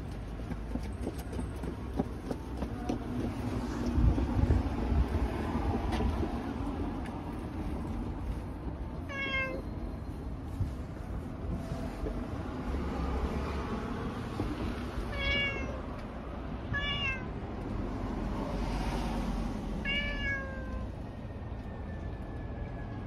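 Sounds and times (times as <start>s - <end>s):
cat meowing: 9.1s - 9.7s, 15.1s - 15.8s, 16.7s - 17.3s, 19.8s - 20.9s.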